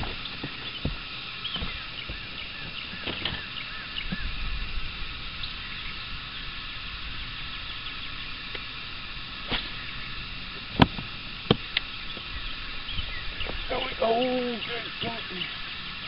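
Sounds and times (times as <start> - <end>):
open-air lake hiss: 0.0 - 16.0
faint bird chirps: 11.6 - 16.0.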